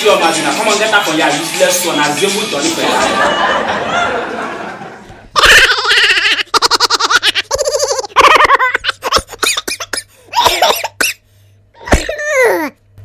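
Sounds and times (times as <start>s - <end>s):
people laughing: 2.6s - 9.4s.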